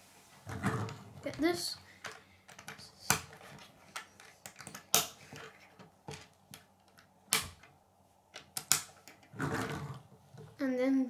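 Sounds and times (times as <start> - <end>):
plastic pieces clicking together: 2.0 - 7.7, 8.3 - 9.4.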